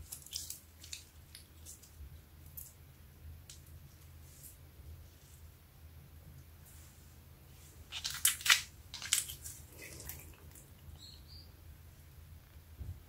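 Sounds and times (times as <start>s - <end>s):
slime squishing: 0.0s - 2.7s
slime crackling and popping: 7.9s - 10.3s.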